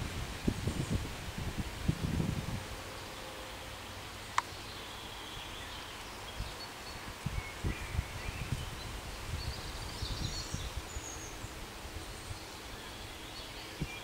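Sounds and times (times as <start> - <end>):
wind buffeting microphone: 0.0 - 2.8, 6.3 - 12.5, 13.6 - 14.0
birds chirping faintly: 2.7 - 14.0.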